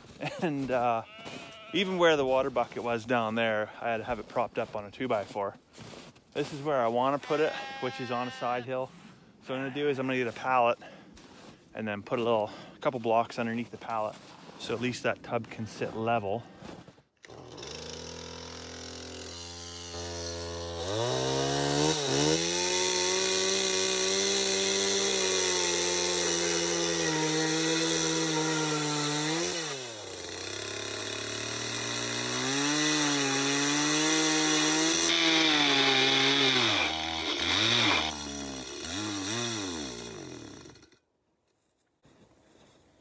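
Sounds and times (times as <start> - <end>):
chainsaw idling and revving: 17.2 - 41.0
chainsaw cutting wood: 17.2 - 41.1.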